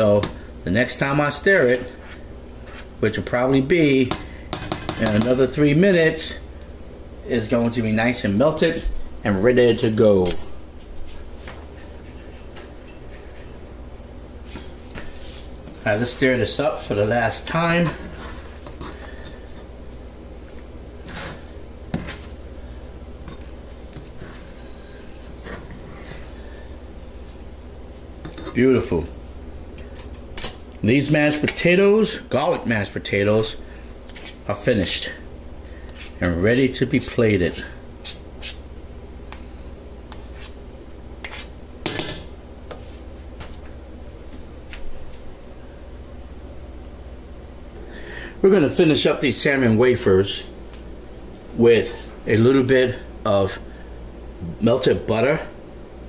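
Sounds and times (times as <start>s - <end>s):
spoon stirring mashed potatoes: 17.4s - 28.6s.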